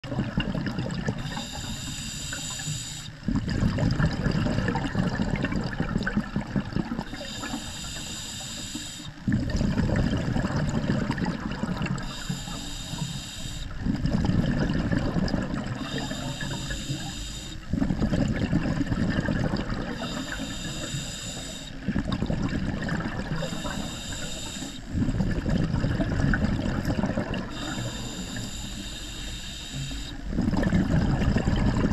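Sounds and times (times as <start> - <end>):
exhaust bubbles gurgling: 0.0 - 31.9
regulator inhale hiss and whistle: 1.2 - 3.2, 7.1 - 9.2, 12.0 - 13.8, 15.8 - 17.6, 19.9 - 21.8, 23.4 - 24.9, 27.5 - 30.2.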